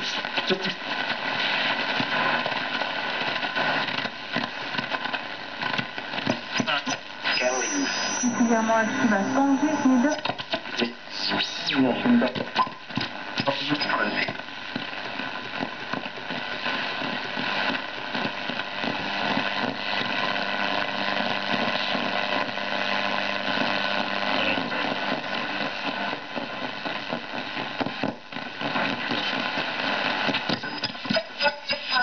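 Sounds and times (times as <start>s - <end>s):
radio crackles: 0.0s - 32.0s
radio static hiss: 0.0s - 32.0s
faint steady tones: 5.0s - 10.2s.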